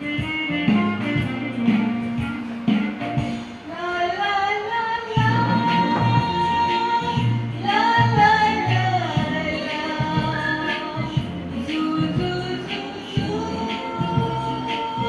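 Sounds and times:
instrumental accompaniment: 0:00.0 - 0:15.0
woman singing into microphone: 0:03.5 - 0:15.0.

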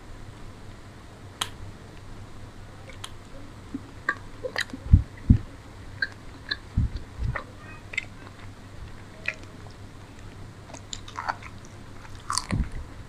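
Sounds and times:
wet mouth clicks: 0:02.9 - 0:05.3, 0:06.0 - 0:08.5, 0:09.2 - 0:09.5
chewing: 0:03.7 - 0:04.8, 0:06.0 - 0:12.8.

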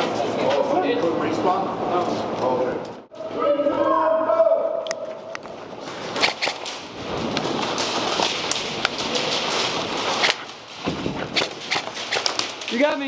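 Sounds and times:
steady noisy rustle: 0:05.4 - 0:13.0.

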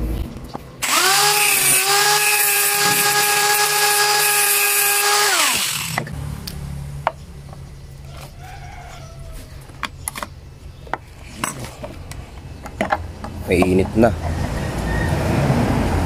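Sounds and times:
electric grinder cutting metal: 0:00.8 - 0:06.2.

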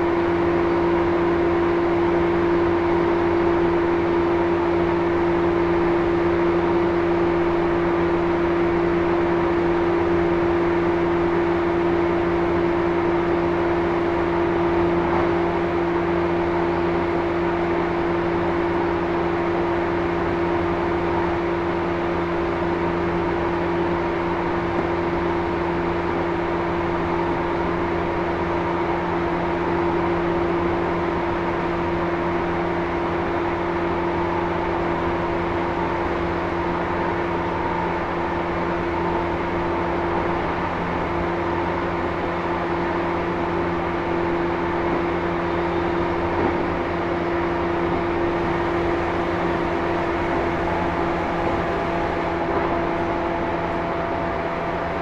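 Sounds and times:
electric train motor whine: 0:00.2 - 0:55.0
wheel and rail rumble: 0:33.5 - 0:55.0.

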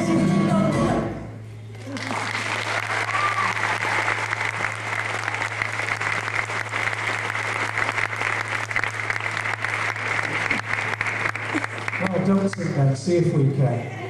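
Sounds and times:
low electrical hum: 0:00.8 - 0:14.0
audience applauding: 0:01.8 - 0:13.0.

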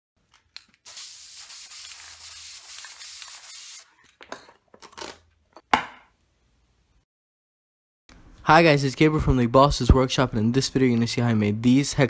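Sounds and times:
spray paint can hissing: 0:00.8 - 0:03.9.

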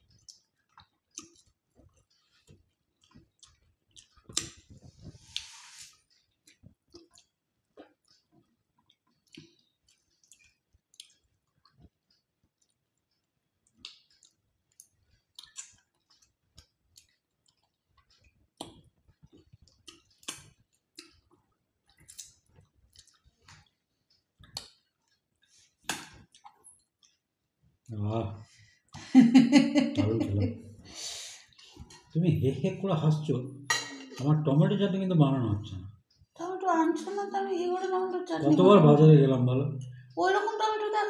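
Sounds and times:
chewing and lip-smacking: 0:00.0 - 0:27.4.

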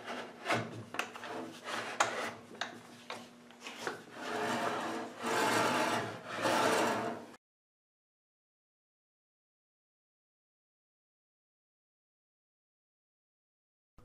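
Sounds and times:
wood scraping on wood: 0:00.0 - 0:07.4.

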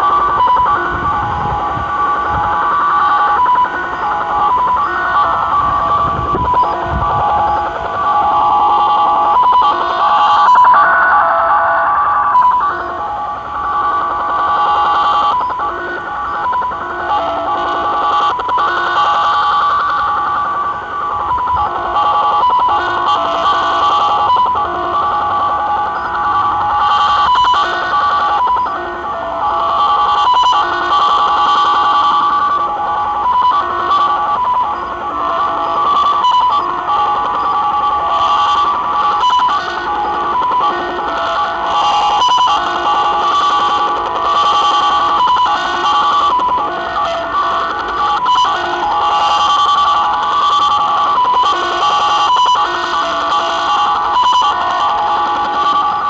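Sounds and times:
beeping data signal tones: 0:00.0 - 0:56.0
radio static: 0:06.3 - 0:20.0
bright tone blip: 0:09.9 - 0:14.1.

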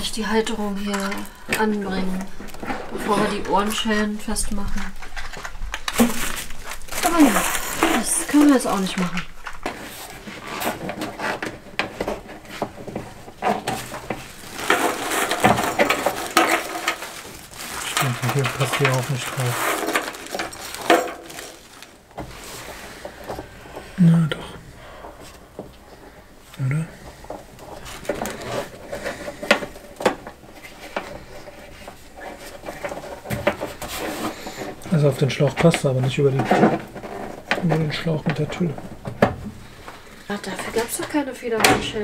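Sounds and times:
rustling: 0:00.0 - 0:42.0
clicks and small knocks: 0:10.6 - 0:23.9.

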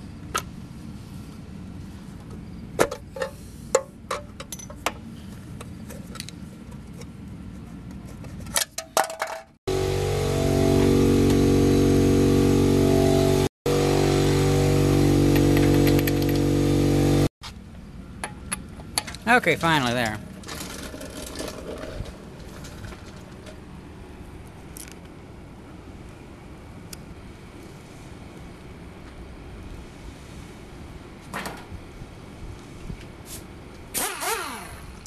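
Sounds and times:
loud steady motor drone: 0:09.7 - 0:17.3.

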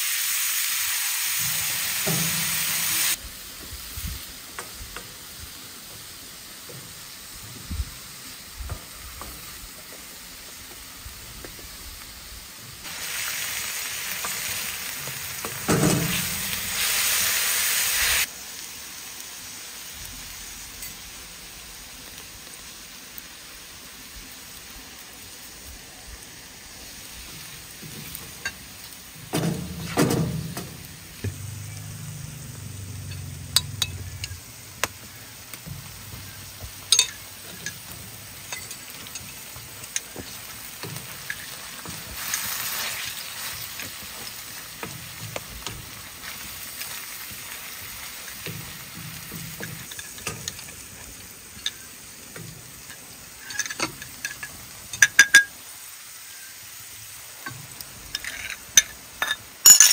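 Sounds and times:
food sizzling in a skillet: 0:00.0 - 0:59.8
thump: 0:29.3 - 0:31.4.

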